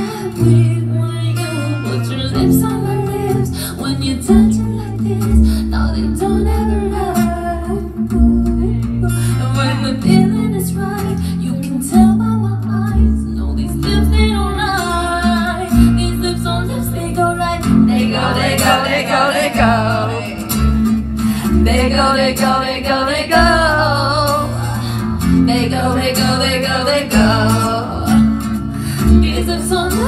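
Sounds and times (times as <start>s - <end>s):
woman singing pop song: 0.0s - 30.0s
deep bass notes: 11.9s - 30.0s.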